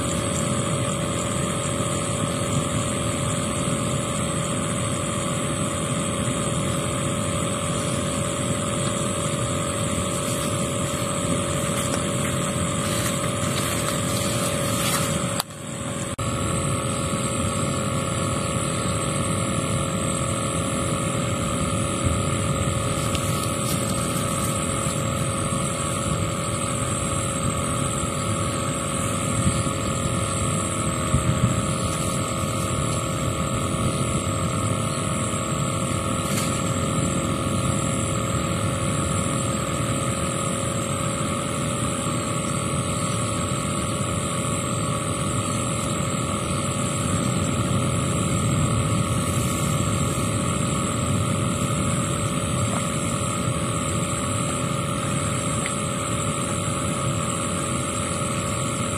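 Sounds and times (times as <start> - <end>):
motor droning: 0.0 - 58.9.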